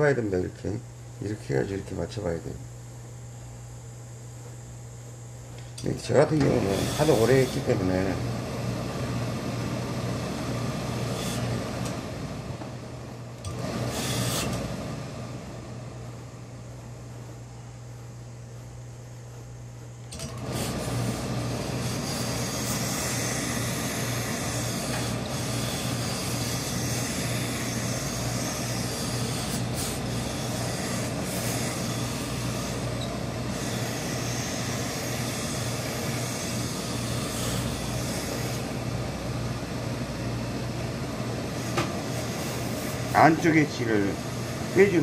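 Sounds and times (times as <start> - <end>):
low machine hum: 0.0 - 45.0
steam iron hissing: 6.5 - 8.0, 10.8 - 11.9, 13.5 - 14.8, 20.3 - 38.8, 41.7 - 45.0.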